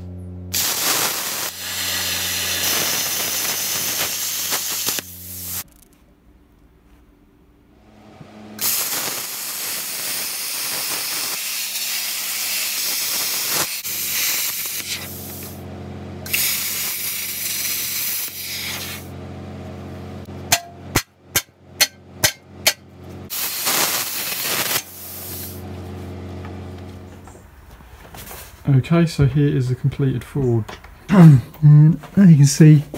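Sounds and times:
arc welding crackling hiss: 0.5 - 5.9, 8.6 - 15.6, 16.3 - 19.1, 23.3 - 25.6
sharp metal taps: 20.5 - 22.9.

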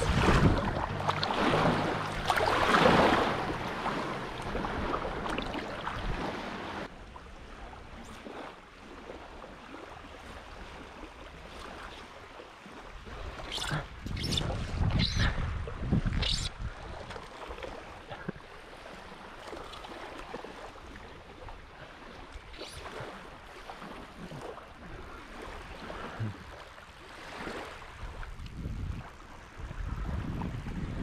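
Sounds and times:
wind buffeting microphone: 0.0 - 6.4, 13.0 - 17.1, 27.9 - 31.0
small waves lapping on sand: 0.0 - 14.8, 16.4 - 31.0.

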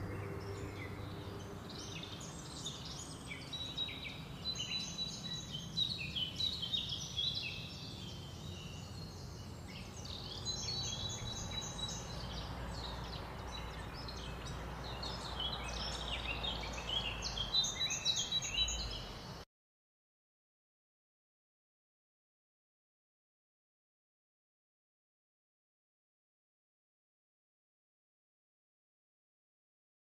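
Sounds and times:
small birds chirping: 0.0 - 19.4
steady low background noise: 0.0 - 19.4.

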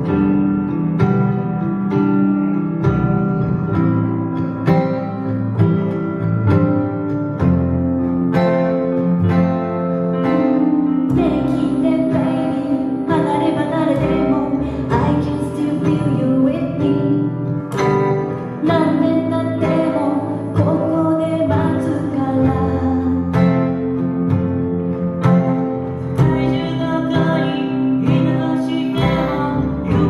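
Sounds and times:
digital piano: 0.0 - 30.0
strummed acoustic guitar: 0.0 - 30.0
upright double bass: 0.0 - 30.0
woman singing: 10.5 - 24.0, 26.1 - 30.0.

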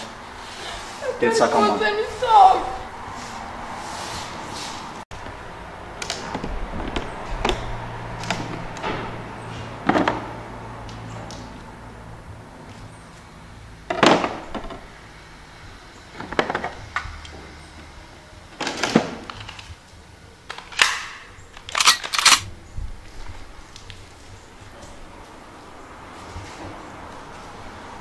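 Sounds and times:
pistol clicks: 20.6 - 22.5.

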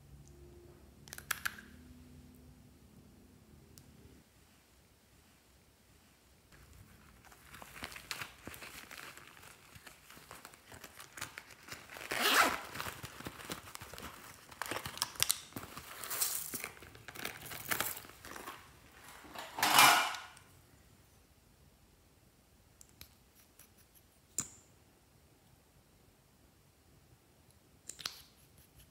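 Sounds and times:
plastic pouch crinkling: 6.6 - 19.9.

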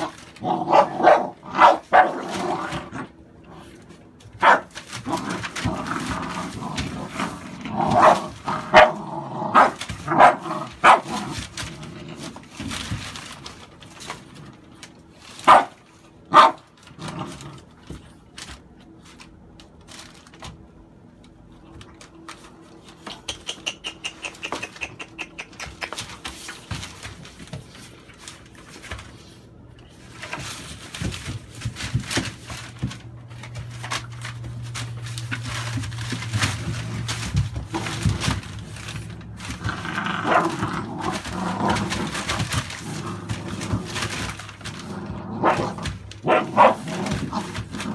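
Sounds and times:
puppies barking: 0.0 - 2.3, 4.4 - 4.9, 7.8 - 11.2, 15.4 - 16.7, 45.4 - 47.6
puppy growling: 0.0 - 13.3, 16.4 - 18.0, 34.7 - 47.9
newspaper crinkling: 0.0 - 23.0, 25.8 - 47.9.

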